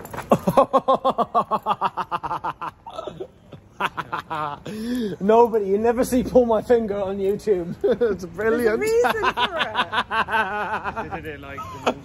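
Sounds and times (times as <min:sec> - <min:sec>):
man laughing: 0:00.3 - 0:05.2, 0:07.6 - 0:08.2, 0:08.9 - 0:12.0.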